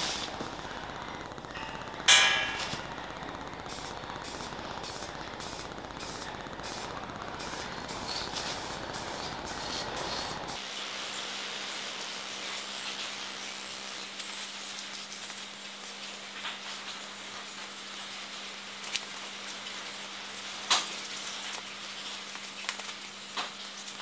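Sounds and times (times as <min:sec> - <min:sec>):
sharp knock: 0:02.1 - 0:02.8
spray paint can hissing: 0:03.6 - 0:24.0.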